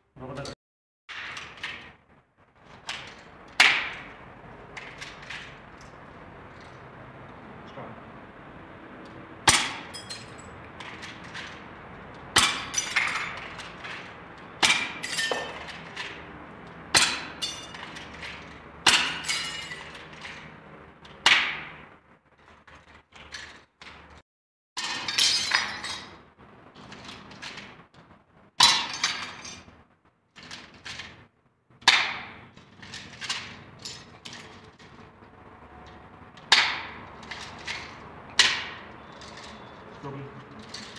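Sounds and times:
brick chips clinking: 2.6 - 6.9, 9.5 - 24.2, 24.8 - 28.0, 30.4 - 35.1, 35.8 - 40.9.

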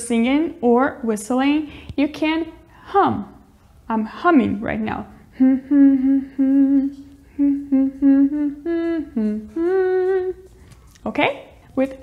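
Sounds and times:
woman humming: 5.3 - 10.6.

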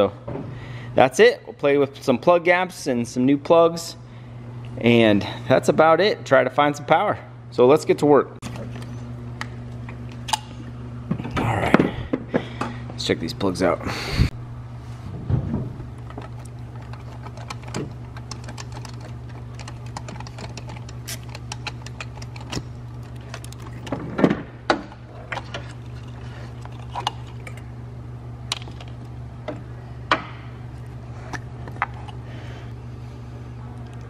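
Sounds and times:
steady low hum: 0.0 - 34.0
clicks and knocks of tools: 16.0 - 24.0.

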